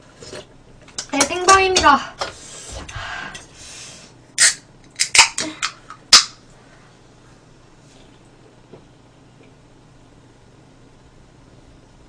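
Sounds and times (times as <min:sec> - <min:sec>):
soda can cracking open: 0:04.4 - 0:06.4.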